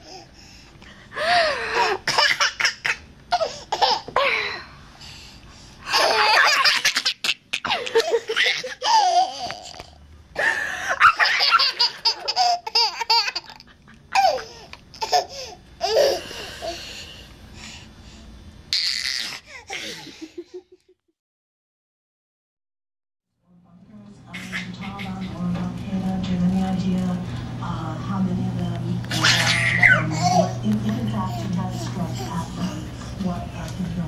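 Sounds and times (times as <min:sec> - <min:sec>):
baby girl giggling: 0:05.9 - 0:09.8, 0:11.0 - 0:16.5, 0:29.1 - 0:30.6.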